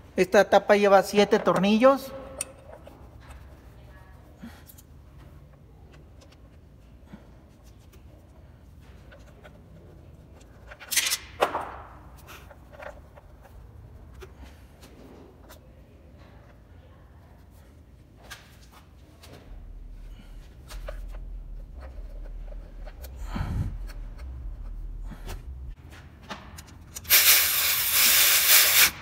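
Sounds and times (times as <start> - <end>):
tools clinking and knocking: 1.4 - 3.5.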